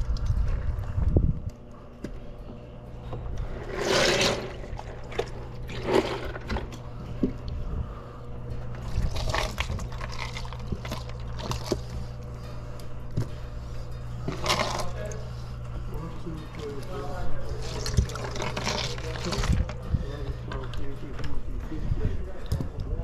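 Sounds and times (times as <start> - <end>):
low hum: 0.0 - 23.0
fish sloshing in water: 8.8 - 11.9.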